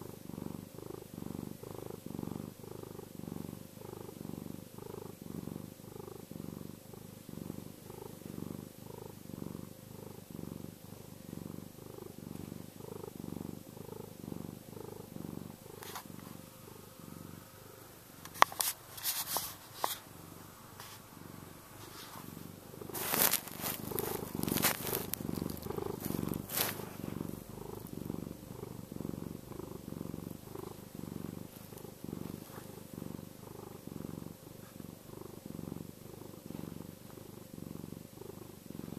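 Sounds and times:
cat purring: 0.0 - 38.9
scratchy noise: 18.2 - 20.1, 20.7 - 27.9.

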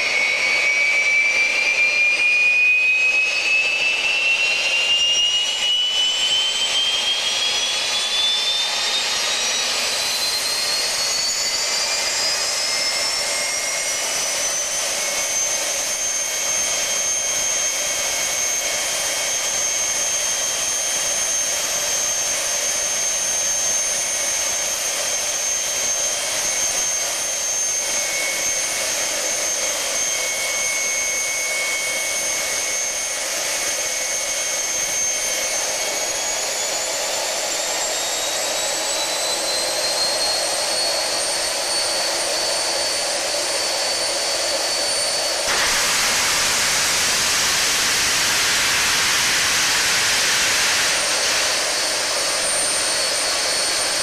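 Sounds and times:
gas turbine whine: 0.0 - 54.0
jet noise rush: 45.4 - 54.0.

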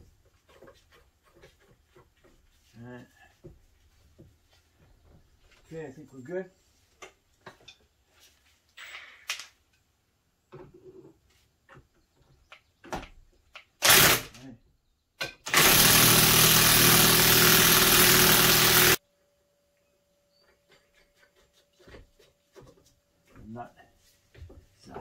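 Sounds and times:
impact wrench hammering: 15.5 - 19.0.

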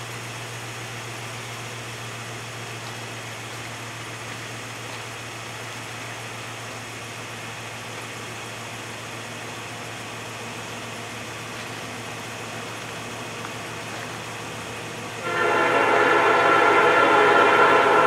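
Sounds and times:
train horn blowing: 15.2 - 18.0.

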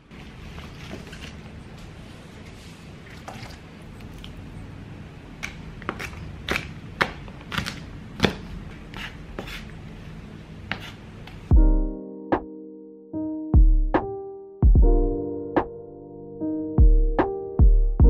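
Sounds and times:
keyboard music: 11.5 - 18.0.

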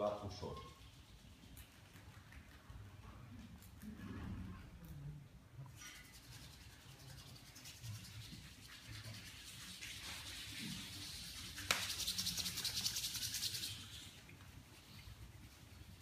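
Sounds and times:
hands rubbing together: 5.8 - 16.0.

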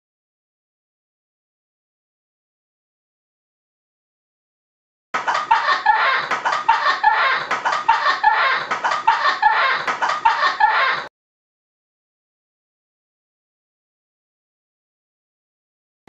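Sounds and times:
person laughing high-pitched: 5.2 - 11.1.

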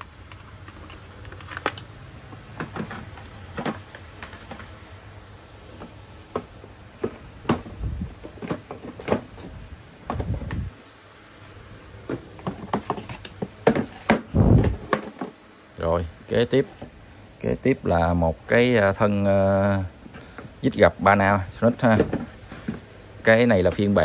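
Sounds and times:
tools and plastic cases handled: 0.0 - 4.8, 5.8 - 10.7, 12.0 - 15.4, 21.8 - 22.9.

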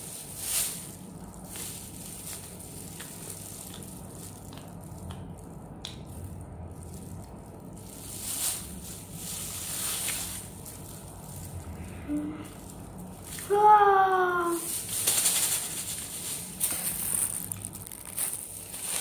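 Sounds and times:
plastic gloves crinkling: 0.0 - 19.0.

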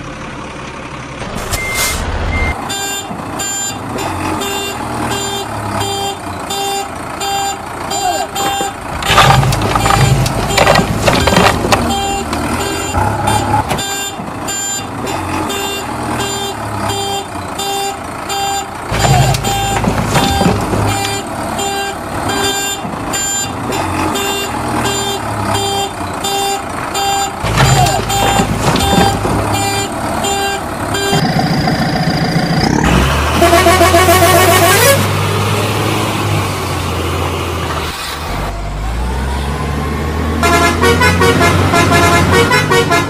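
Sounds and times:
reversing alarm beeping: 1.4 - 3.8, 4.6 - 14.9, 24.3 - 31.2.

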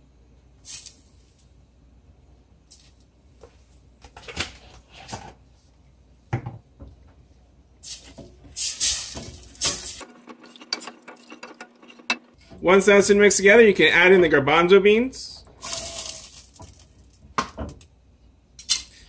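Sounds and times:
spatula stirring broth in pot: 10.0 - 12.5.

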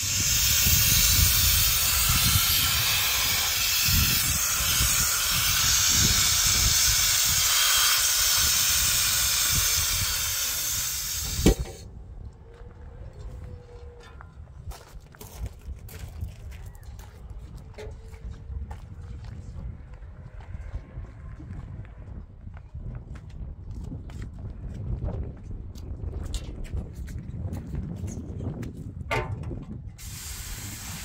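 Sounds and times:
gas hissing from valve: 0.0 - 11.8, 30.0 - 31.0.

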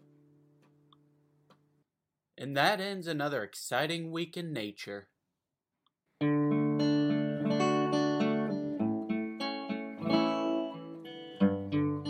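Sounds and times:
acoustic guitar picked notes: 6.2 - 12.0.

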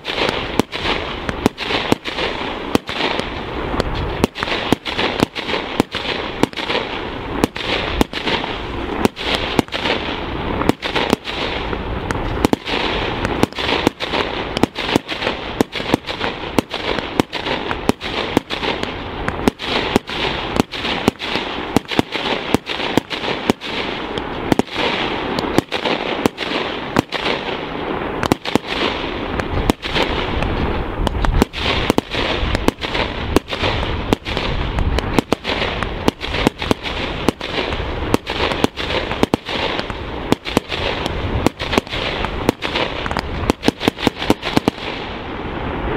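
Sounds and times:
continuous rushing noise: 0.0 - 45.9.

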